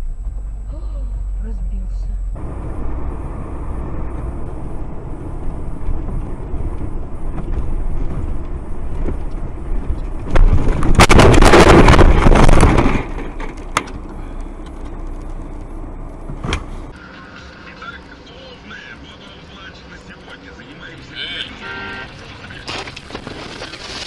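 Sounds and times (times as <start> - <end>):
vehicle and road noise: 0.0 - 24.0
truck crashing into vehicle: 10.3 - 14.0, 22.5 - 24.0.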